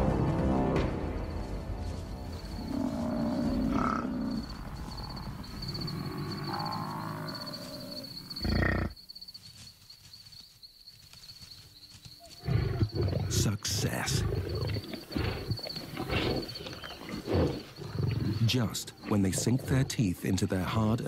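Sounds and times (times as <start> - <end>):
buffalo calls: 2.5 - 9.0
lions growling and snarling: 2.7 - 9.0, 12.4 - 20.8.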